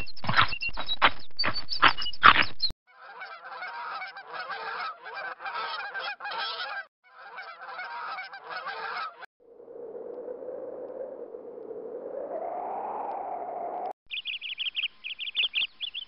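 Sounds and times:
geese honking: 2.9s - 9.3s.

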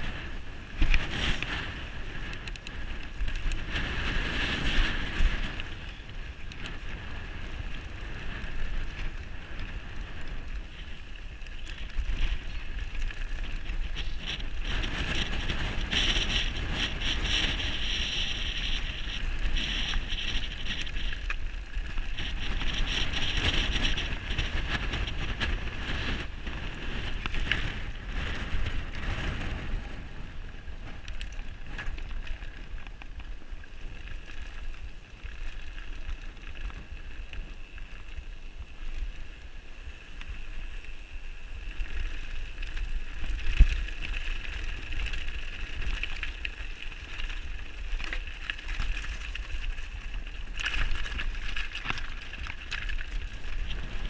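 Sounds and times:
tyres over gravel: 0.0s - 54.0s
wind on microphone: 0.0s - 54.0s.

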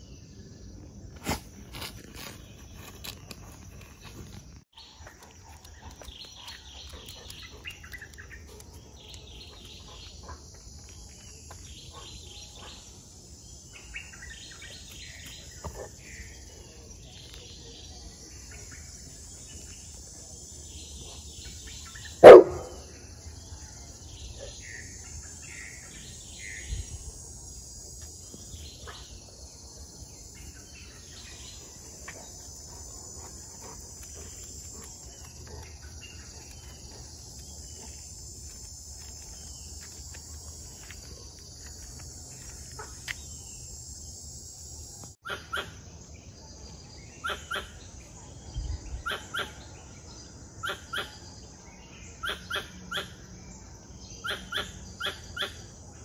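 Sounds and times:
high insect drone: 0.0s - 45.2s
birds chirping: 1.8s - 45.6s
dog barking: 22.2s - 22.8s.

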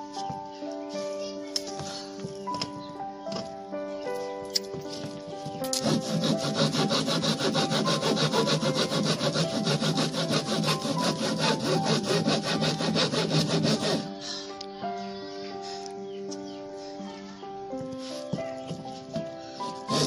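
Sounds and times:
hand saw cutting plywood: 5.7s - 14.1s, 19.6s - 20.0s.

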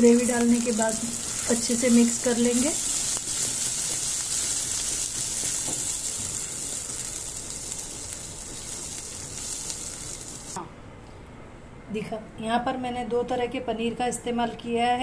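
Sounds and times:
gravy sizzling in a pan: 0.0s - 10.6s.

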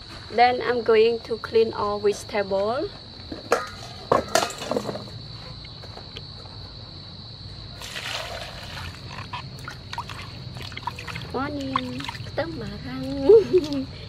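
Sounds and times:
water poured and sloshing: 7.8s - 13.9s.

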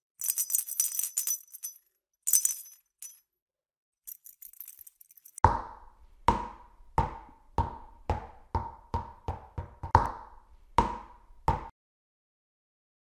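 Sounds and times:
cartoon bouncing ball knocks: 5.4s - 11.7s.

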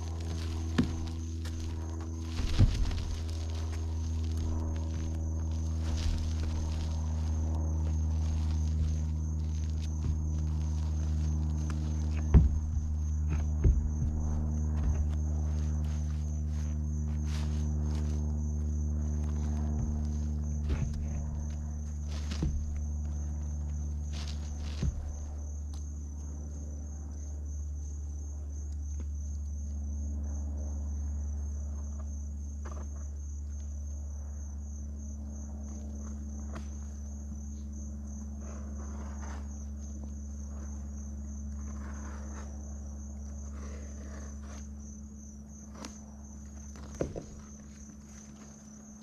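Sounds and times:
light knocks and rustles: 0.0s - 25.9s
low rumble: 0.0s - 26.9s
insects trilling: 0.0s - 49.0s.

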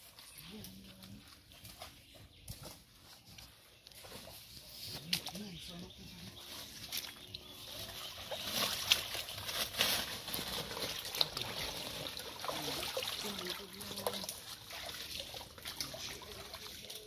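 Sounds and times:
person wading through water: 4.0s - 17.0s.

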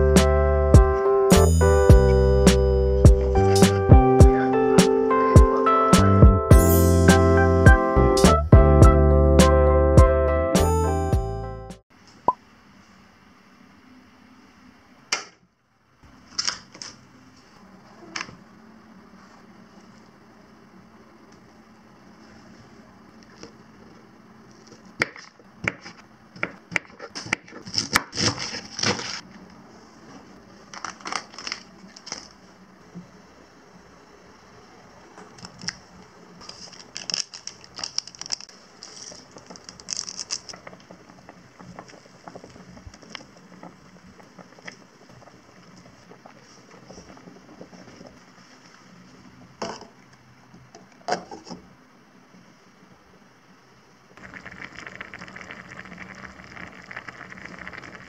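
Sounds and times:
packet crinkling and rustling: 30.6s - 32.4s, 36.4s - 43.8s.

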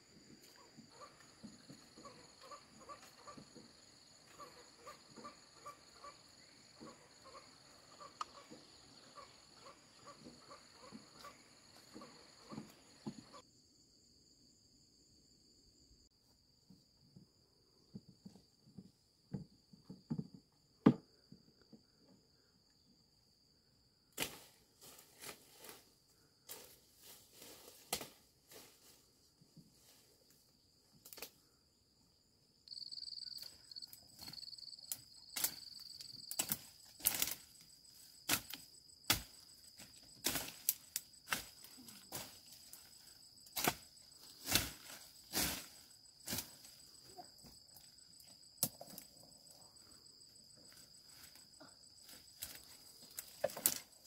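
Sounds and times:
high insect drone: 29.8s - 54.0s
stems rustling and snapping: 34.2s - 37.5s, 40.2s - 41.7s, 52.4s - 53.9s.

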